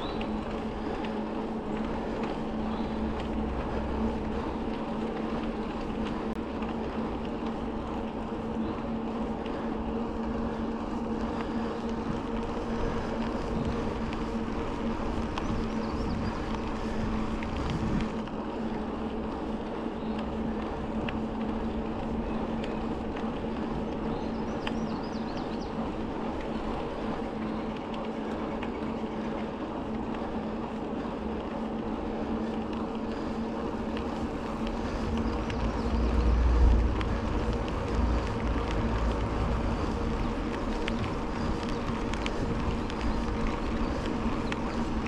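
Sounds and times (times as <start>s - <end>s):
bicycle tyre noise: 0.0s - 45.0s
low wind rumble: 0.0s - 45.0s
wind on the microphone: 9.8s - 18.2s, 32.3s - 45.0s.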